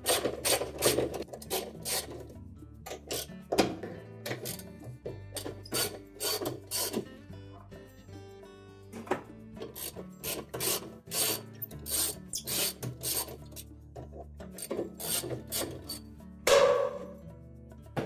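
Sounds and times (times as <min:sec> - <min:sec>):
ratchet rasping: 0:00.0 - 0:03.4, 0:04.3 - 0:04.7, 0:05.4 - 0:07.1, 0:09.6 - 0:13.7, 0:14.5 - 0:16.1.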